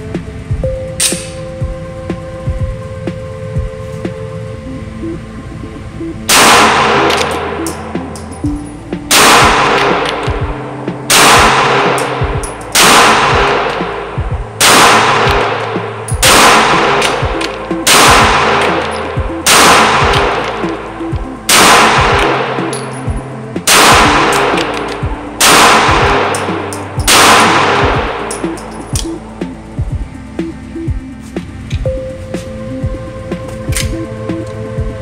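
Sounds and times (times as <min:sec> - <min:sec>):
pistol shots echoing indoors: 0:06.3 - 0:07.8, 0:09.1 - 0:10.3, 0:11.1 - 0:13.9, 0:14.6 - 0:20.6, 0:21.5 - 0:23.0, 0:23.7 - 0:26.4, 0:27.0 - 0:28.4.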